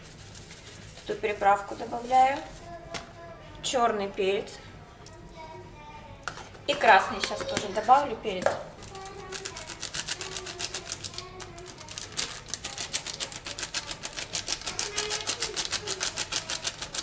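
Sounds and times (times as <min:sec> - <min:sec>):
wrapper crinkling: 0:08.8 - 0:17.0
packet shaken and tapped: 0:08.9 - 0:17.0.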